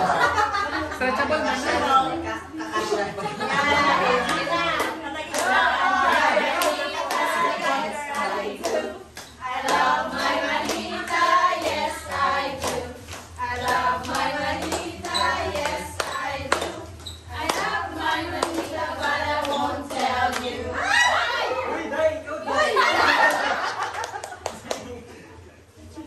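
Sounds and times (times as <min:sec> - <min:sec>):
group of people singing: 0:02.7 - 0:21.8
hands clapping: 0:04.3 - 0:07.5, 0:08.1 - 0:17.8, 0:23.3 - 0:25.0.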